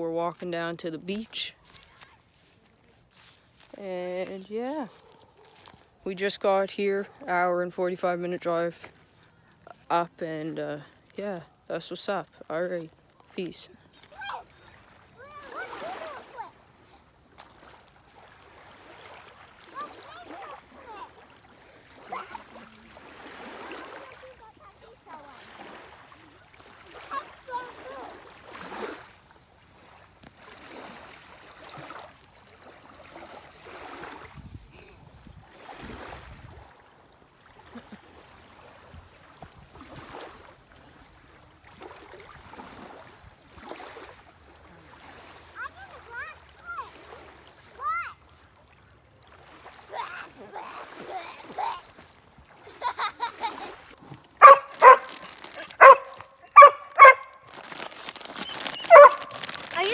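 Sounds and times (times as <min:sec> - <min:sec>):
water lapping at shoreline: 0:00.0 - 0:59.9
small dog yapping: 0:54.4 - 0:57.5, 0:58.4 - 0:59.5.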